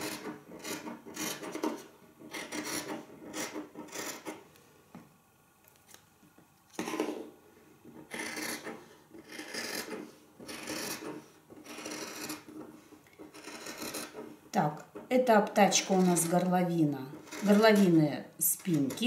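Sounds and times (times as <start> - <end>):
shears snipping fabric: 15.6 - 18.0, 18.6 - 19.0.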